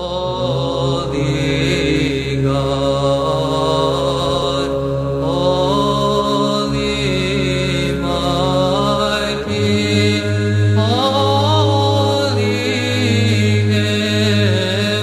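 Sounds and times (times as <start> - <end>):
slow ornamented sung melody: 0.0 - 15.0.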